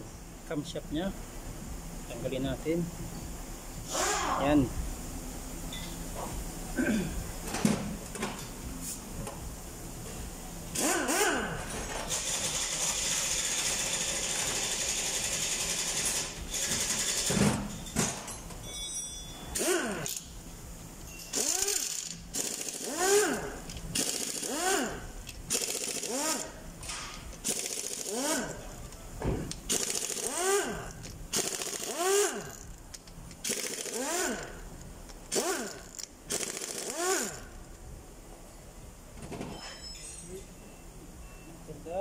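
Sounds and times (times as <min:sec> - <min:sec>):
impact wrench bursts: 0:03.8 - 0:04.4, 0:10.7 - 0:17.7, 0:19.5 - 0:20.4, 0:21.3 - 0:28.8, 0:29.5 - 0:37.6.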